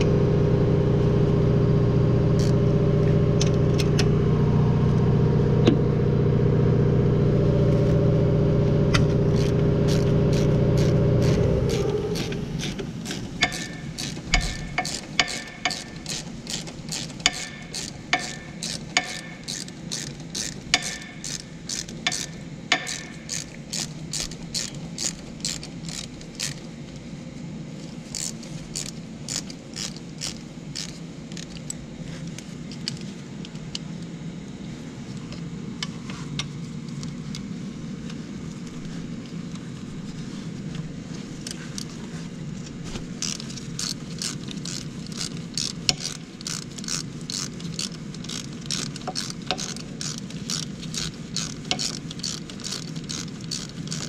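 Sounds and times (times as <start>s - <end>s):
mechanical hum: 0.0s - 54.0s
socket ratchet clicking: 2.4s - 2.6s, 9.3s - 26.7s, 28.1s - 31.8s, 43.2s - 54.0s.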